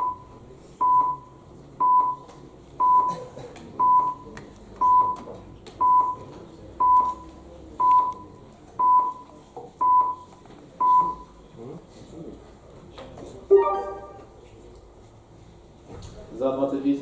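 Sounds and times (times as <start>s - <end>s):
countdown beeps: 0.0s - 2.2s, 2.8s - 3.1s, 5.8s - 6.2s, 9.8s - 11.3s, 13.5s - 14.4s.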